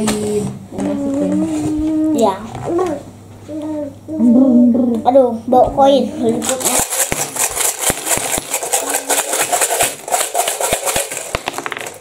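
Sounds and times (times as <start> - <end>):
coins rattling and clinking: 6.5 - 12.0.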